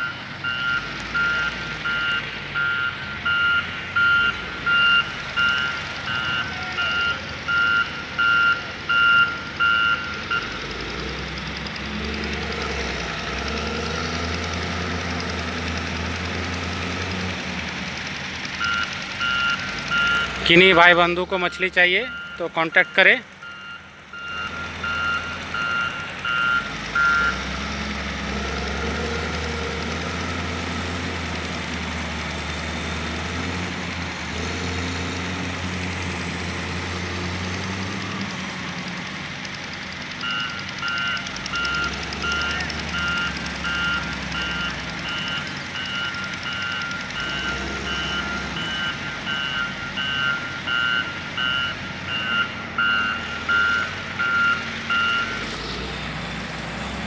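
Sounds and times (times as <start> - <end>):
vehicle engine rumble: 0.0 - 57.0
electronic warning beeper: 40.2 - 55.8.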